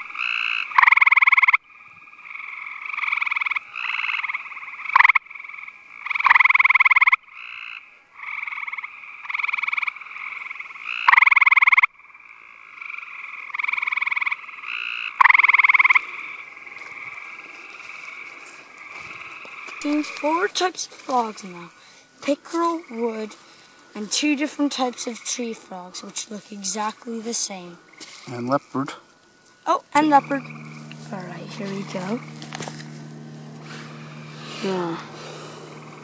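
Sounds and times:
frog trilling loudly: 0.1 - 17.4, 29.7 - 31.5
quieter frog trills: 0.1 - 21.9, 29.7 - 36.0.

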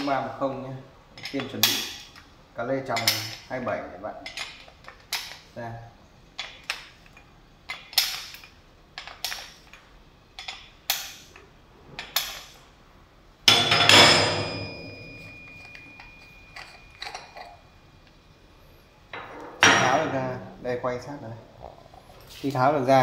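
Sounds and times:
spanner clinking on metal: 1.2 - 2.2, 2.9 - 3.6, 4.2 - 5.4, 13.5 - 17.7
ringing metal clank: 13.5 - 17.8, 19.1 - 20.3.

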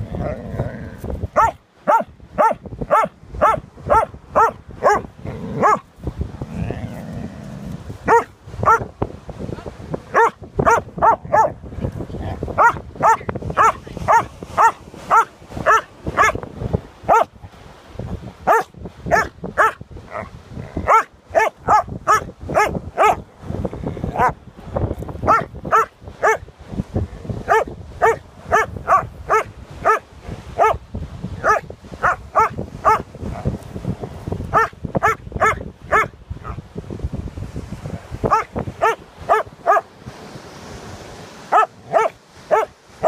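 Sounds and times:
dog barking: 1.4 - 5.8, 8.1 - 8.8, 10.1 - 11.6, 12.6 - 16.4, 17.1 - 17.3, 18.5 - 19.8, 20.8 - 23.2, 24.2 - 24.4, 25.3 - 26.4, 27.5 - 30.0, 30.6 - 30.8, 31.4 - 33.0, 34.5 - 36.6, 38.3 - 39.9, 41.5 - 42.7.

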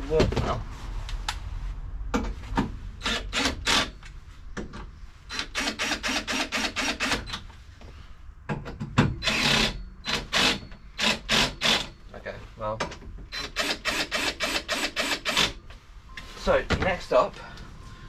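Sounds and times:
cordless drill clicking and rasping: 3.0 - 3.9, 5.3 - 7.4, 9.2 - 11.9, 13.4 - 15.6.

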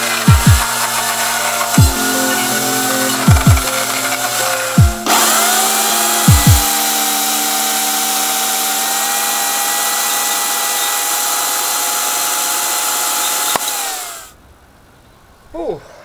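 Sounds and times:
electric chainsaw running: 0.0 - 14.4
low thumps: 1.8 - 5.7
chainsaw click: 5.1 - 14.3.

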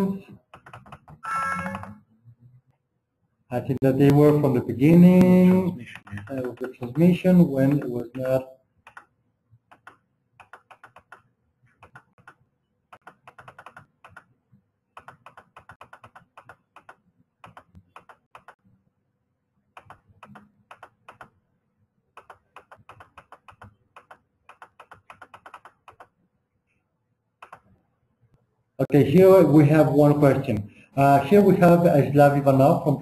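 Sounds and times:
faint keyboard typing: 0.3 - 2.8, 4.0 - 18.7, 19.7 - 21.5, 22.1 - 26.3, 27.4 - 27.8.

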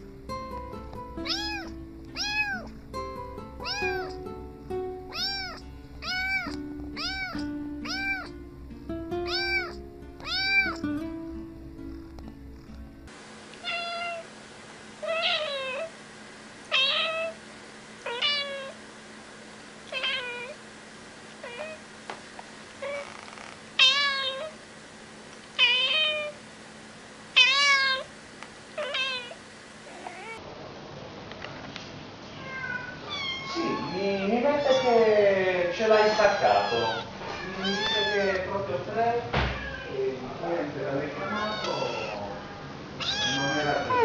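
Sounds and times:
cat meowing: 1.2 - 2.8, 3.6 - 4.2, 5.1 - 8.4, 9.2 - 10.9, 13.6 - 14.3, 15.0 - 15.9, 16.7 - 17.4, 18.0 - 18.8, 19.9 - 20.6, 21.4 - 21.8, 22.8 - 24.6, 25.6 - 26.4, 27.4 - 28.1, 28.8 - 30.4, 32.3 - 35.2, 35.8 - 38.5, 39.5 - 40.1, 41.1 - 44.0.

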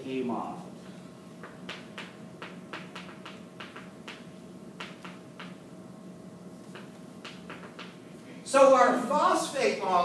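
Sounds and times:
faint steady hum: 0.0 - 10.0
chalk tapping on chalkboard: 1.4 - 5.6, 6.6 - 8.0.

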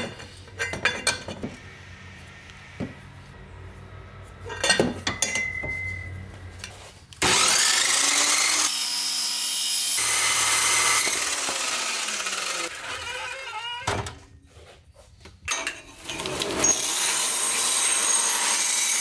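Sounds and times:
chop saw cutting metal tube: 7.2 - 13.4, 16.1 - 19.0.

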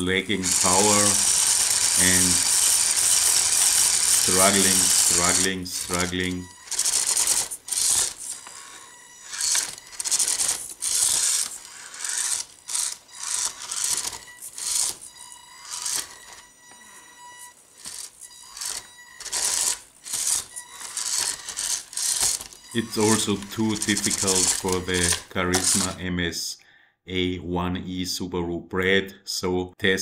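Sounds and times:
small electric motor whirring: 0.0 - 26.0
thin high whine: 0.0 - 26.0.

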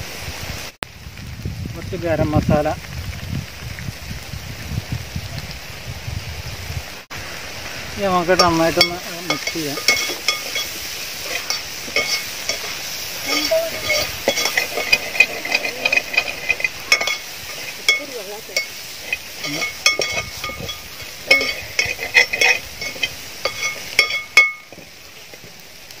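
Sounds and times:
food sizzling: 0.0 - 26.0
metal skimmer clinking on pot: 8.4 - 25.0.

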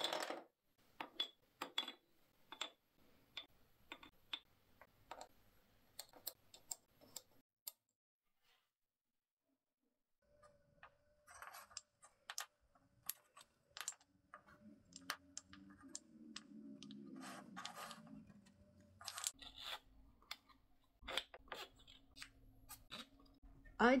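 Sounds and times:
wood and metal parts clicking: 11.3 - 23.3
pieces rubbing together: 13.0 - 19.9.

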